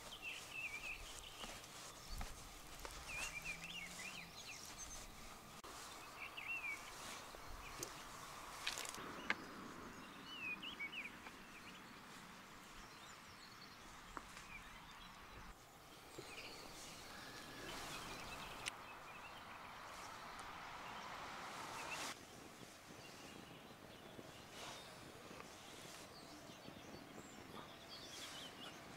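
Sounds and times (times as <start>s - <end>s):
bird chirps: 0.0s - 8.1s, 8.7s - 12.0s, 12.7s - 28.9s
steady background hiss: 0.0s - 23.0s.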